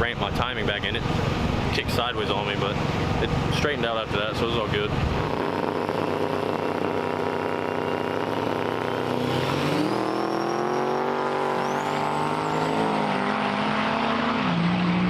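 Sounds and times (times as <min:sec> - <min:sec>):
diesel truck engine accelerating: 0:00.0 - 0:15.0
high whistle: 0:09.8 - 0:12.5.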